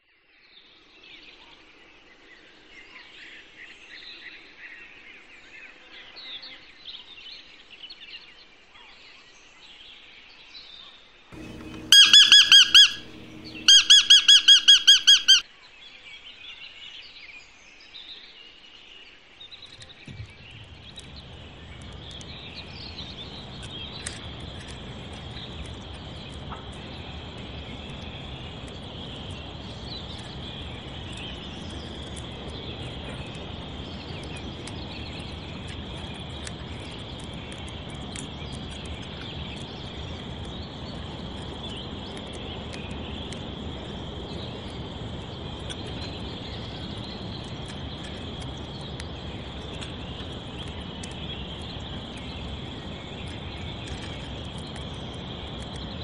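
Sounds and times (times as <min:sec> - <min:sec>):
faint high chirping: 0:11.4 - 0:15.4
rapid high-pitched repeated animal notes: 0:11.4 - 0:15.4
steady high trill: 0:11.4 - 0:15.4.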